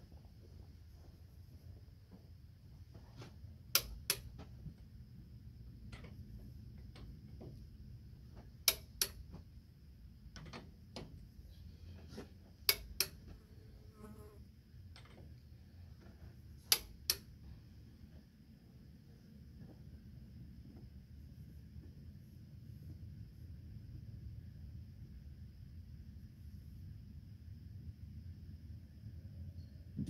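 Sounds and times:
torque wrench clicks: 3.7 - 4.4, 8.6 - 9.3, 12.7 - 13.3, 16.7 - 17.3
insect buzz: 13.6 - 14.6.

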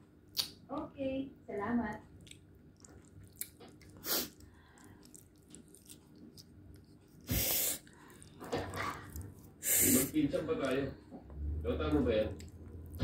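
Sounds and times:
person sharp noisy in-breaths: 4.0 - 4.9, 7.3 - 8.2, 9.6 - 10.2.

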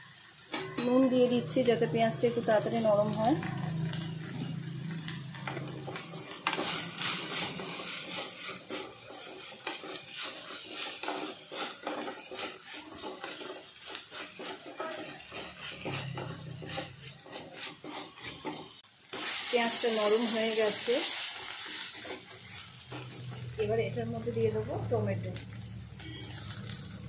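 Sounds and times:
wooden spoon scraping clay pot: 2.6 - 18.8, 20.7 - 25.1.

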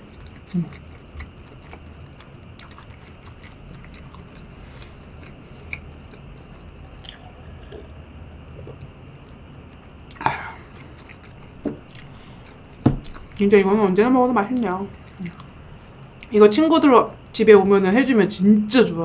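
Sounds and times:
person chewing wet mouth sounds: 0.0 - 13.4
low room hum: 0.0 - 19.0.

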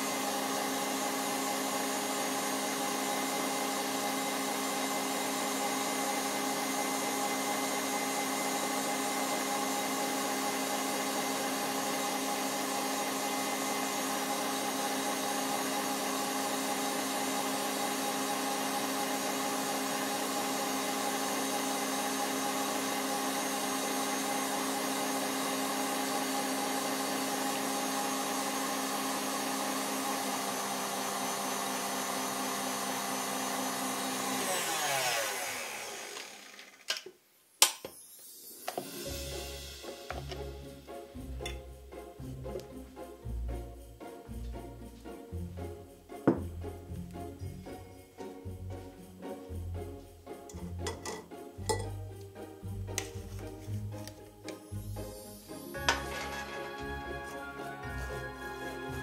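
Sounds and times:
stand mixer motor hum: 0.0 - 36.9.

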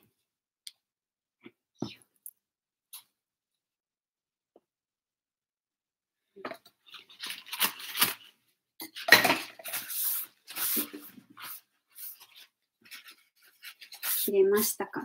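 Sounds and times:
kitchen items clinking and knocking: 8.8 - 9.9.

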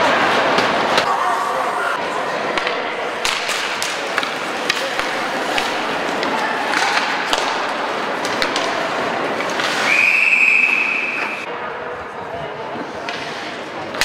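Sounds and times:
steady crowd din: 0.0 - 14.0
hockey sticks clicking: 2.5 - 11.5, 13.0 - 14.0
skate blades scraping ice: 3.4 - 11.5.

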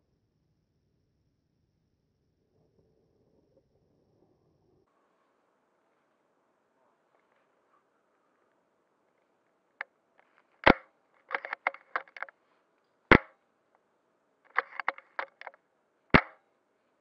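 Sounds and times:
airsoft gun shots: 10.6 - 12.3, 13.1 - 13.4, 16.1 - 16.4
small mechanical clicks: 10.6 - 12.3, 14.5 - 15.6.

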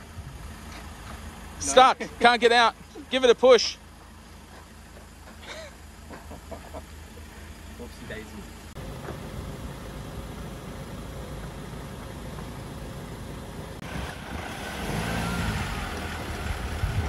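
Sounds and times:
truck engine straining: 0.0 - 17.0.

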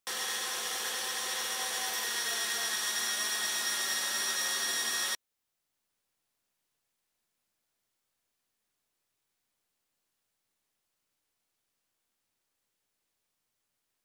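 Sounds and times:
metal lathe whirring: 0.1 - 5.2.

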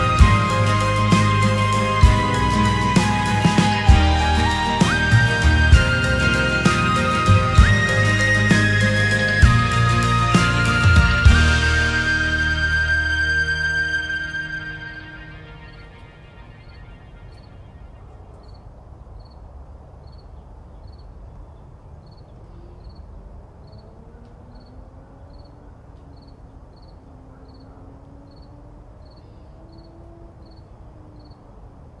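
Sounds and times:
faint gliding tones: 0.0 - 19.2
cricket chirping: 12.0 - 32.0.

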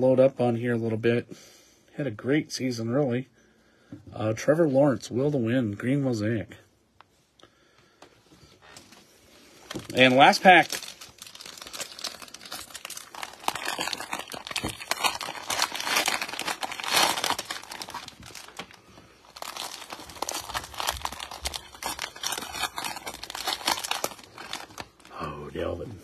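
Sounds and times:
cellophane wrapper crackling: 9.6 - 25.3.

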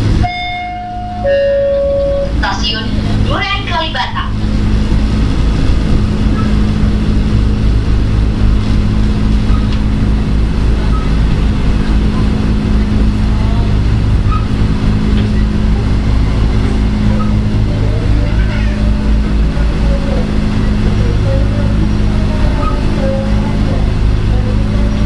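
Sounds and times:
train running rumble: 0.0 - 25.0.

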